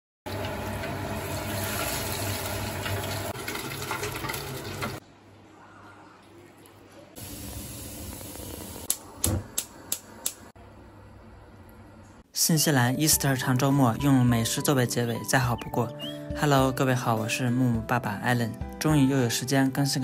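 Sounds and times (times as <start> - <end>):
tempura sizzling in hot oil: 0.3 - 5.0.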